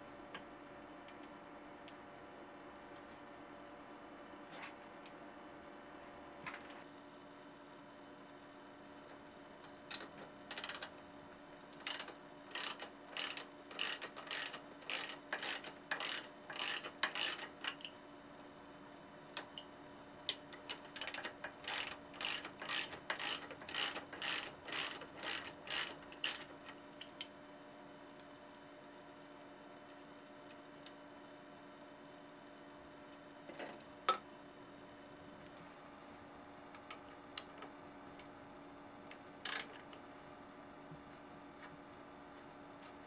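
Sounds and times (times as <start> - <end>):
ratchet wrench clicking: 10.5 - 10.9, 11.8 - 17.9, 20.6 - 27.2, 39.4 - 39.8.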